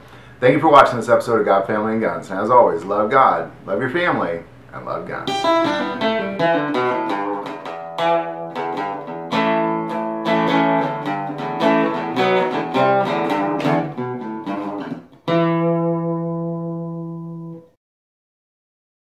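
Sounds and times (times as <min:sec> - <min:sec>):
guitar picking notes: 0:05.0 - 0:17.8
guitar chord ringing: 0:05.2 - 0:17.8.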